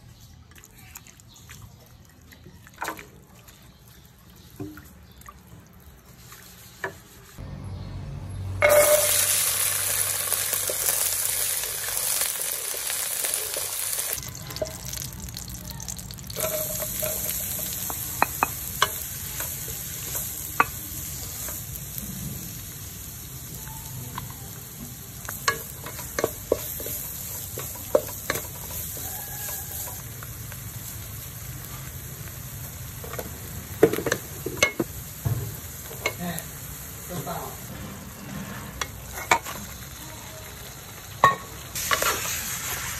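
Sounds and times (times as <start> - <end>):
wooden spatula scraping a pan: 6.2 - 7.4, 37.6 - 39.7
oil sizzling in a wok: 8.6 - 42.9.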